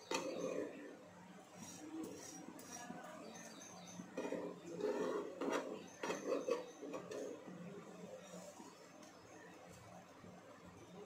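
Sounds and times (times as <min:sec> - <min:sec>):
metal spatulas scraping a pan: 0:01.6 - 0:07.5.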